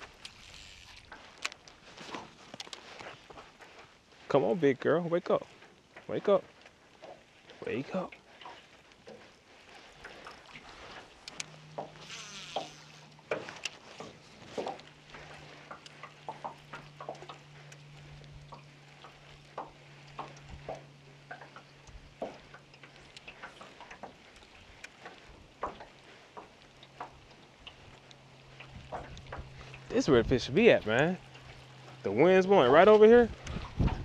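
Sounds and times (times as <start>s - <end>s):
steady low hum: 0.0s - 34.0s
water lapping against boat hull: 0.0s - 34.0s.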